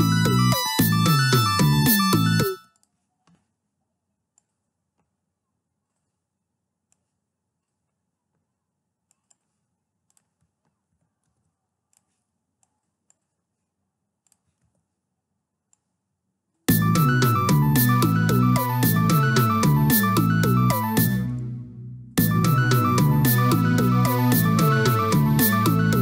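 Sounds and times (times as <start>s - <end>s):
keyboard and synth music: 0.0s - 2.7s, 16.7s - 26.0s
computer mouse clicks: 4.3s - 5.1s, 9.0s - 13.6s, 14.2s - 14.9s.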